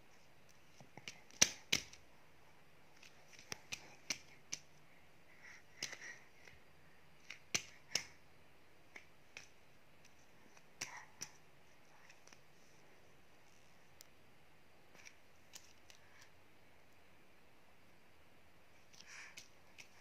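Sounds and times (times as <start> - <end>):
hands slapping a surface: 0.8 - 2.0, 3.0 - 4.7, 5.8 - 6.1, 7.2 - 8.2.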